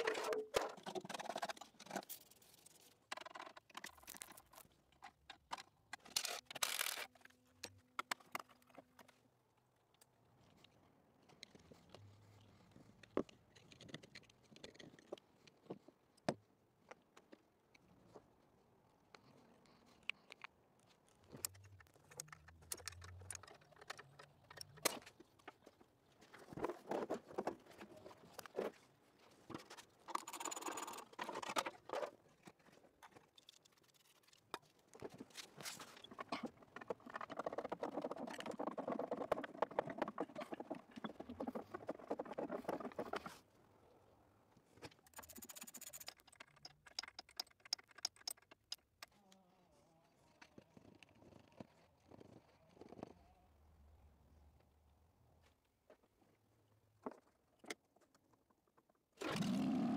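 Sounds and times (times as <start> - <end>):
small metal clicks and knocks: 13.0 - 16.3, 19.1 - 25.8, 44.8 - 49.2.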